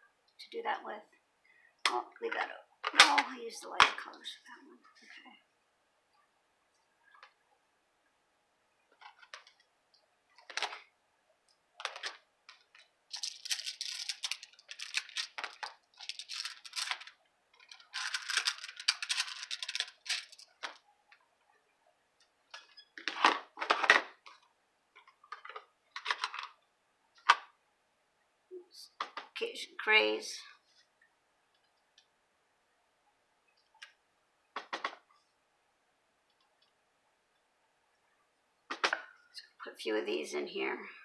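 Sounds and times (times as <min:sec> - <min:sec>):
scratchy rustling: 0:12.7 - 0:20.6.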